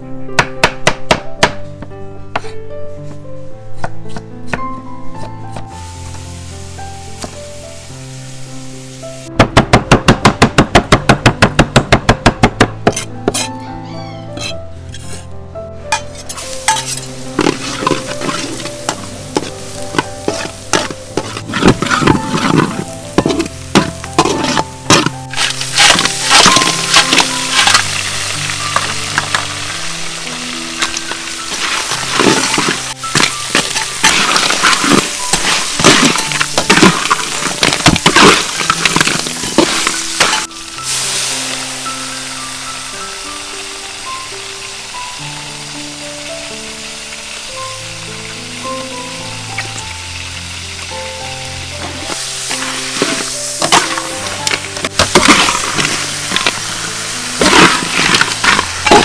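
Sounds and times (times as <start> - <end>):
background music: 0.0 - 59.0
food sizzling in a pan: 5.5 - 9.3, 16.0 - 59.0
spatula scraping in a pan: 12.9 - 13.5, 14.4 - 15.3, 16.0 - 28.0, 30.8 - 41.1, 51.8 - 59.0.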